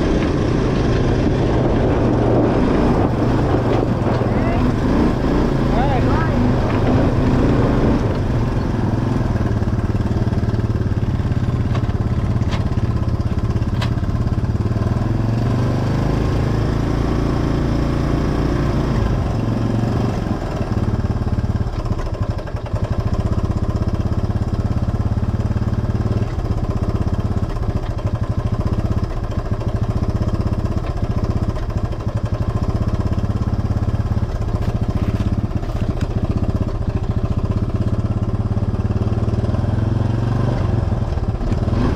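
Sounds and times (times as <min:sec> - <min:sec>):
atv engine running: 0:00.0 - 0:41.9.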